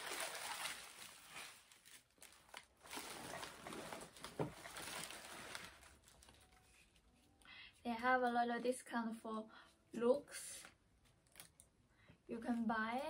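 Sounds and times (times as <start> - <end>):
paper rustling: 0.0 - 7.3.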